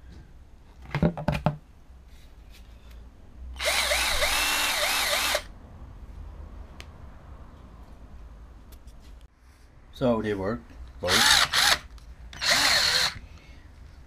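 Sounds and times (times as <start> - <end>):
cordless drill motor whine: 3.6 - 5.5, 11.1 - 13.2.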